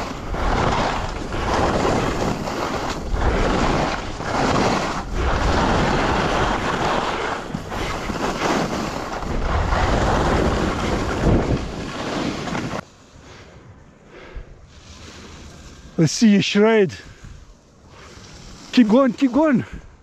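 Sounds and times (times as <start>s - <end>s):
wind rushing over microphone: 0.0s - 12.8s, 16.9s - 20.0s
skis hissing over snow: 0.0s - 13.3s, 14.6s - 19.8s.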